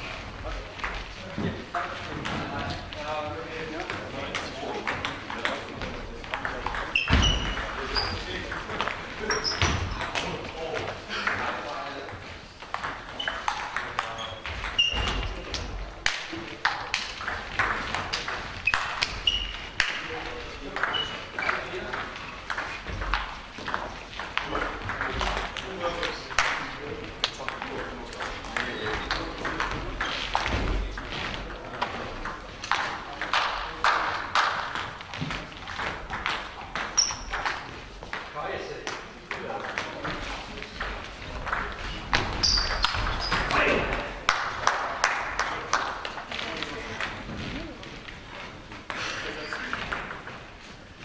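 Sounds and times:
table tennis balls clicking: 3.8 - 47.4
short high squeaks: 14.2 - 15.3, 18.6 - 19.7, 42.4 - 43.5.

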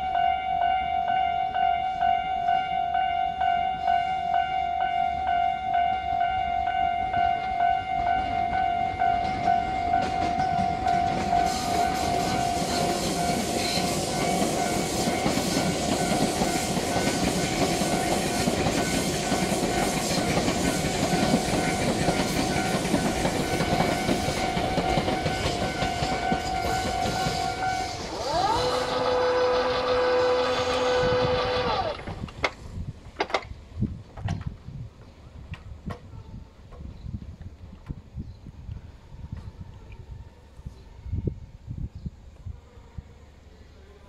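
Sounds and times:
level crossing bell ringing: 0.0 - 12.6
train wheels on rails: 1.5 - 38.7.

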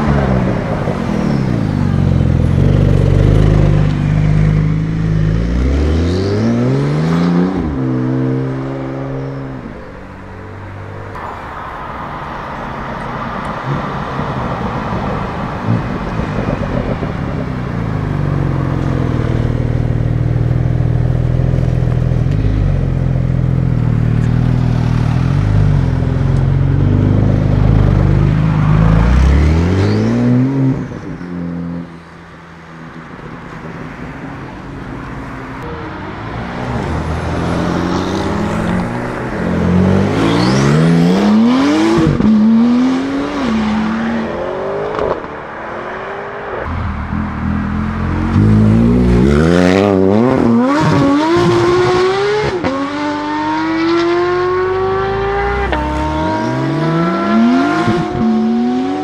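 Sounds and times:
car engine revving: 36.0 - 59.0
car accelerating through upshifts: 36.1 - 59.0.

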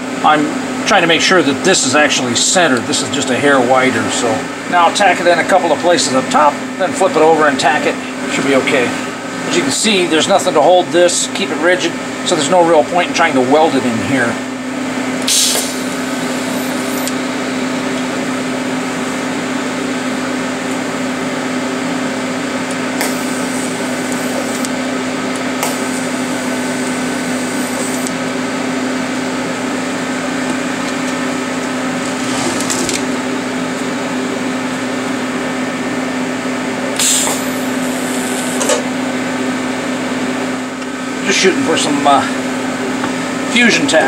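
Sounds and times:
welder humming: 15.2 - 19.3, 22.6 - 30.6, 36.9 - 39.0.

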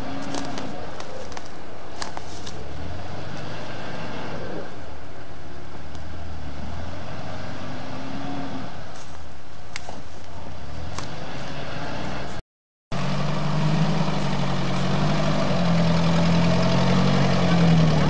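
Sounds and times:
off-road vehicle engine revving: 2.7 - 4.6, 6.0 - 8.9, 10.6 - 18.0.

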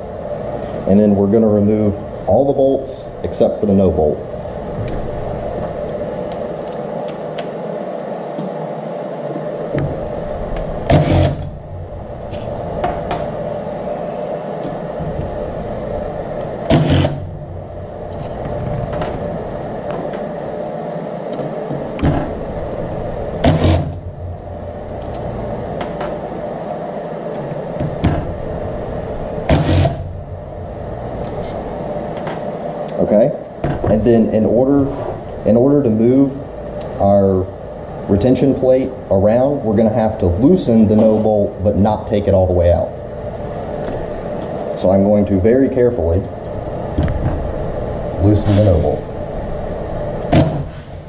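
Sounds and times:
steady background hum: 0.0 - 51.0
impact driver bursts: 10.9 - 11.5, 16.7 - 17.3, 23.4 - 24.0, 29.5 - 30.1.

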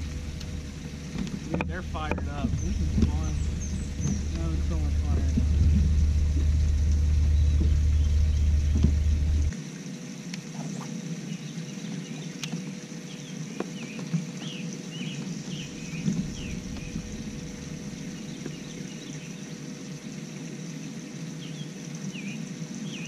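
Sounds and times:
wind rumble on microphone: 0.0 - 9.6, 15.3 - 19.4
lakeside ambience: 0.0 - 23.0.

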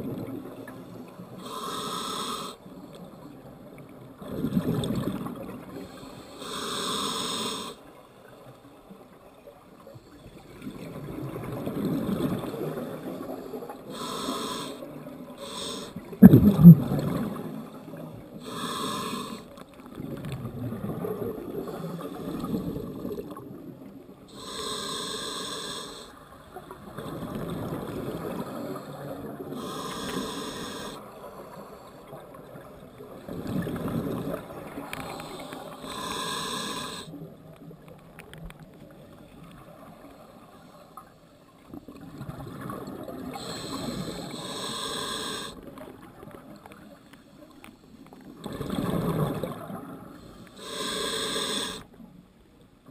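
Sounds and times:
hissing regulator inhales: 1.4 - 2.6, 5.8 - 7.8, 13.9 - 16.0, 18.4 - 19.5, 24.3 - 26.2, 29.5 - 32.1, 34.9 - 37.1, 43.3 - 45.6, 50.2 - 51.9
exhaled bubbles rumbling: 16.1 - 17.8, 48.4 - 50.2.

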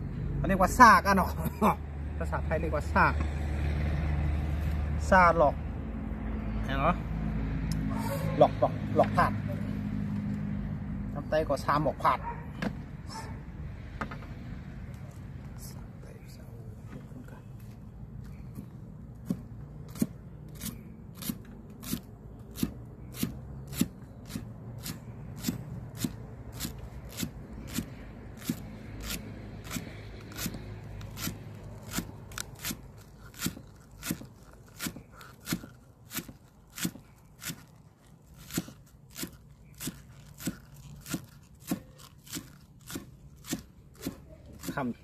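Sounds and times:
knife chopping on cutting board: 31.2 - 37.7, 38.5 - 44.9.

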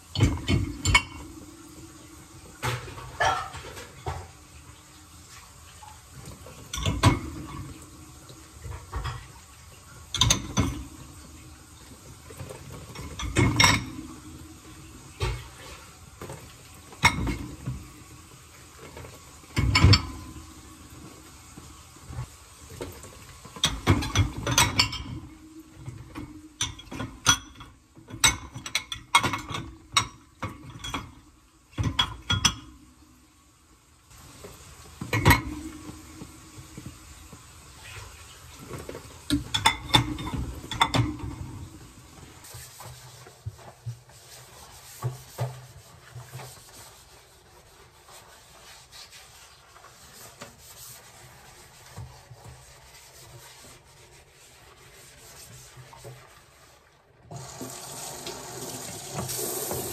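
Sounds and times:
dishes clattering in dishwasher rack: 0.1 - 1.4, 2.5 - 4.4, 6.4 - 7.9, 8.6 - 9.4, 10.0 - 11.1, 12.3 - 14.5, 16.9 - 17.8, 18.8 - 20.5, 23.0 - 32.8, 35.0 - 36.9, 38.7 - 41.8.

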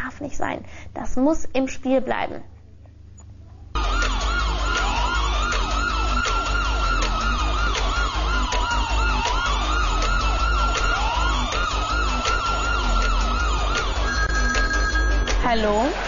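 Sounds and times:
falling synth chirps: 3.8 - 15.6
electronic quiz show music: 3.8 - 16.0
pulsing low beat: 3.8 - 16.0
siren-like synth sweeps: 3.8 - 16.0.

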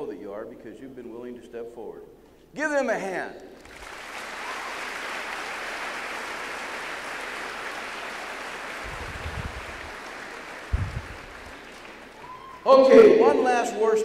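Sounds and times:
crowd applauding: 3.6 - 12.7
low thuds: 10.7 - 11.2.

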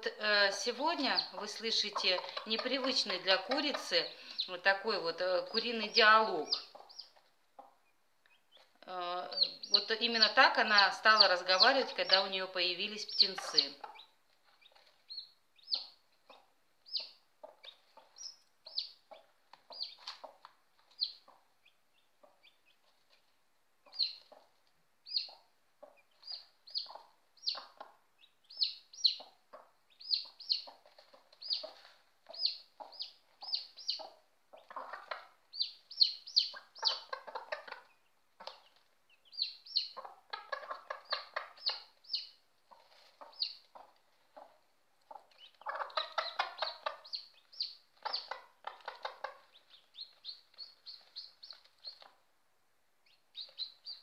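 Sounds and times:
chicks peeping: 0.0 - 52.3, 53.0 - 54.0
hen clucking softly: 0.3 - 23.2, 23.8 - 52.2.

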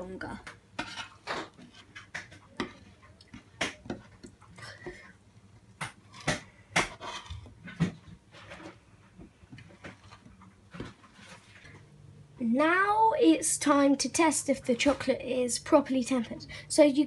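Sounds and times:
metal spatula scraping and clicking: 0.8 - 4.4, 6.1 - 7.5.

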